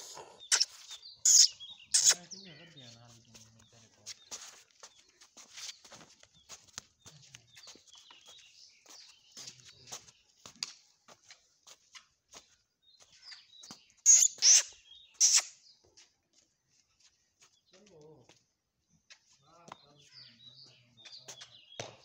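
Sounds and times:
loud harsh bird calls: 0.0s - 3.0s, 13.0s - 15.8s
birds chirping: 0.0s - 22.0s.

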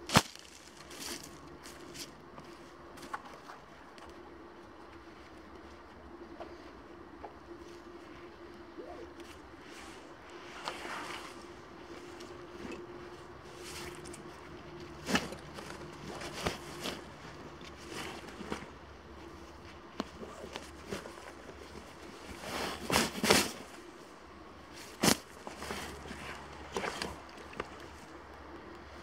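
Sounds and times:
sharp crack: 0.0s - 0.5s
footsteps in dry leaves: 0.0s - 3.2s, 9.8s - 19.6s.

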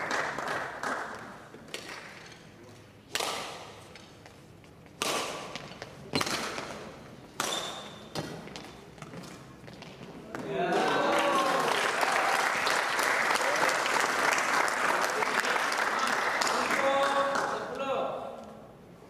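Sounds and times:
rackets striking shuttlecock: 3.1s - 4.2s, 4.8s - 10.5s.

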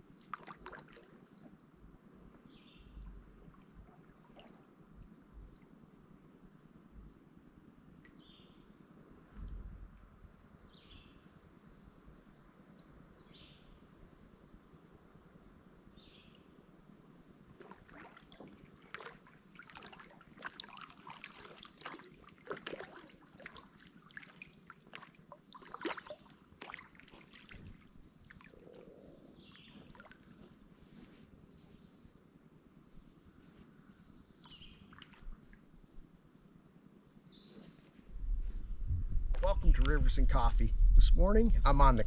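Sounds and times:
water splashing and dripping: 0.2s - 1.1s, 17.6s - 28.8s, 29.7s - 30.3s, 34.9s - 35.6s.

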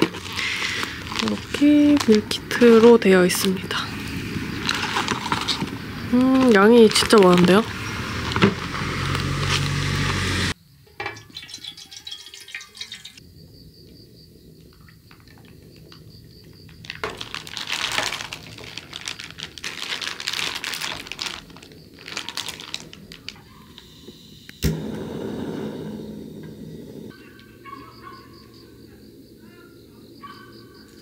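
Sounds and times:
plastic packaging crinkling: 0.0s - 10.2s, 16.6s - 23.8s
liquid splashing into a pan: 11.0s - 13.2s
gas stove burner hissing: 23.7s - 27.2s.

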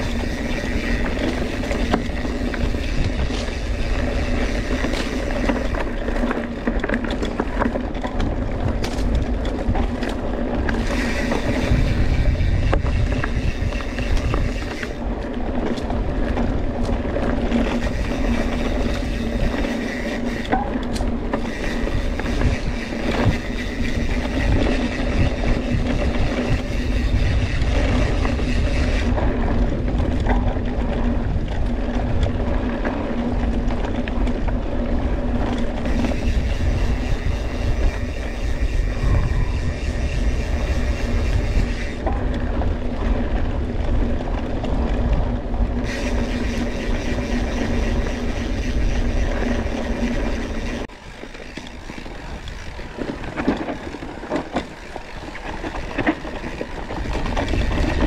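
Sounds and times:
constant buzz: 0.0s - 58.0s
tyres rolling over dirt trail: 0.0s - 58.0s
wind buffeting microphone: 0.0s - 58.0s.

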